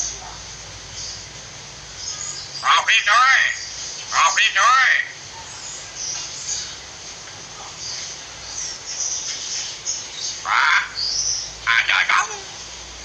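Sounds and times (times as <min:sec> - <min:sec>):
faint high bird chirps: 0:02.0 - 0:02.7
harsh bird call: 0:02.0 - 0:05.2, 0:10.3 - 0:12.6.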